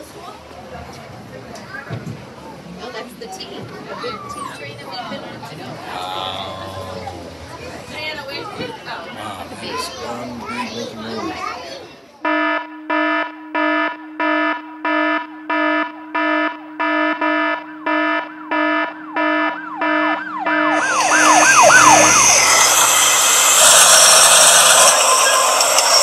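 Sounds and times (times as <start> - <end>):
buzzy electronic alarm horn beeping: 12.3 - 26.0
wailing siren: 13.0 - 26.0
loud hiss: 20.8 - 26.0.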